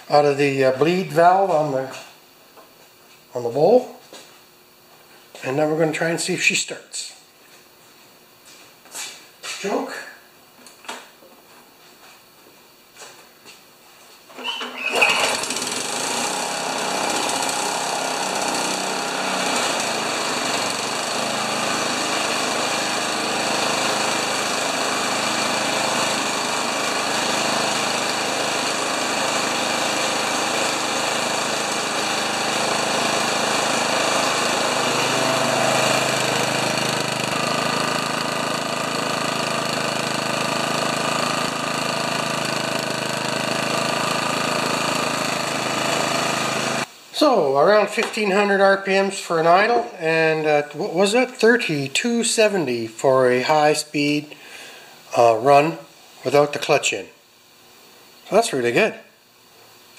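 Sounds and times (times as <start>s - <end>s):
lawn mower engine running: 14.4s - 46.9s.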